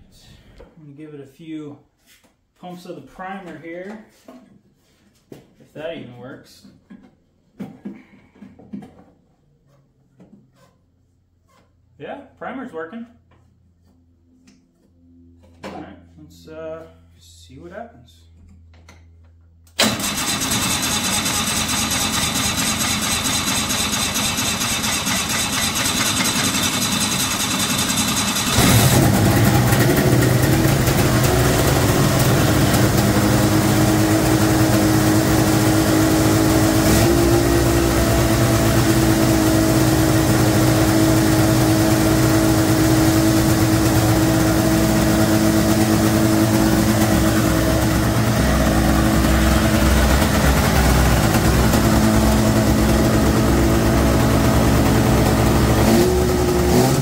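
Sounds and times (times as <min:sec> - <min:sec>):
electric starter cranking engine: 0:19.7 - 0:57.0
snowmobile engine fast idle: 0:19.8 - 0:57.0.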